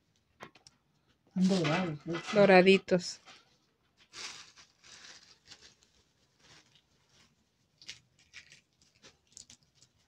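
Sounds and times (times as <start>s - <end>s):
plastic bag crinkling: 3.4s - 10.0s.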